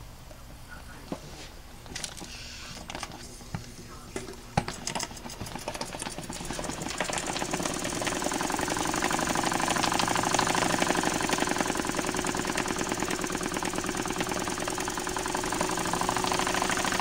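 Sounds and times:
steam engine chuffing: 5.0s - 17.0s.

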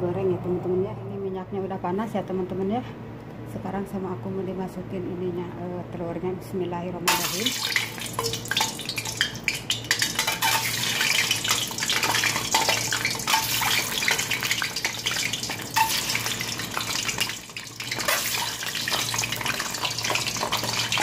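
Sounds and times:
oil sizzling and popping in wok: 7.1s - 21.0s.

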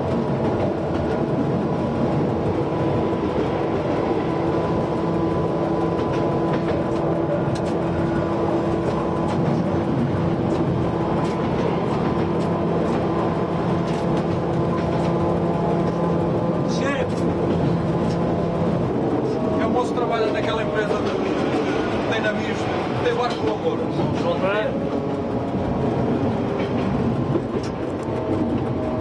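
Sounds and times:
railcar engine droning: 0.0s - 29.0s
railcar running noise: 0.0s - 29.0s
wheels clicking on rails: 0.0s - 29.0s.

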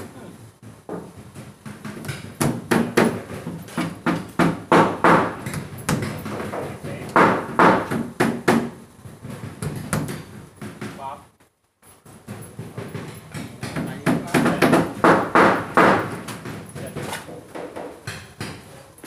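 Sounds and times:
hammer driving nails into wood: 1.7s - 8.8s, 12.7s - 18.7s.

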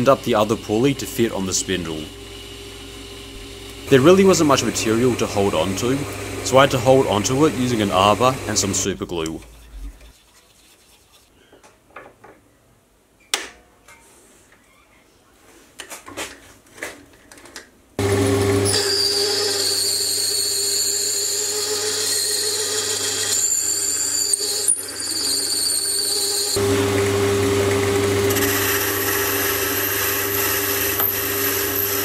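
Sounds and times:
lathe motor humming and whining: 0.0s - 8.8s, 18.0s - 32.0s.

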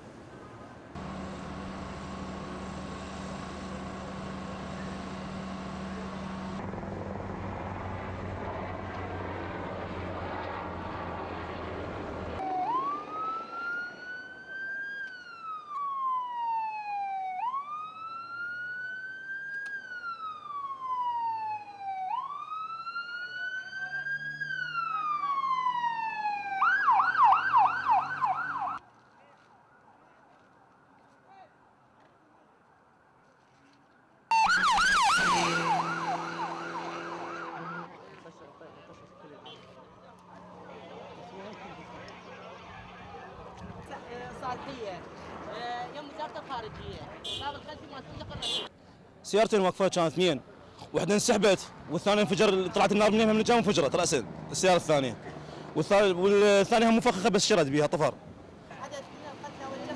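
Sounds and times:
helicopter drone: 1.0s - 14.2s
ambulance siren wailing: 12.4s - 28.8s, 34.3s - 43.4s
siren fast yelp: 12.4s - 28.8s, 34.3s - 38.0s.

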